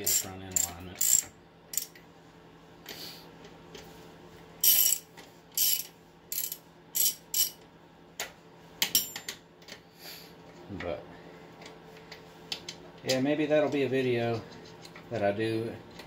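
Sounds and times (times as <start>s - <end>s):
hand ratchet clicking: 0.0s - 1.9s, 4.6s - 5.0s, 5.6s - 7.6s.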